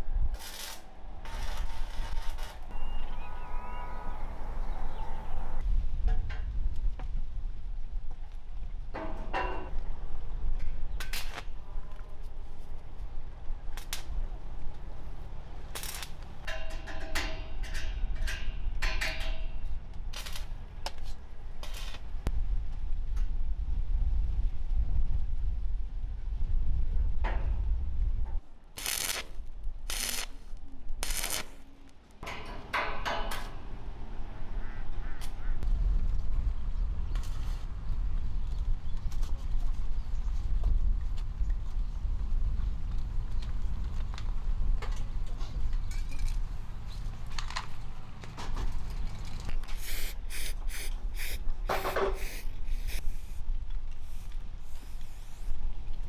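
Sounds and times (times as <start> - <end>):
arc welding crackling hiss: 0.3 - 2.7, 15.7 - 16.4, 28.8 - 31.6, 49.7 - 53.4, 54.0 - 55.6
aerosol spray can hissing: 49.7 - 53.4.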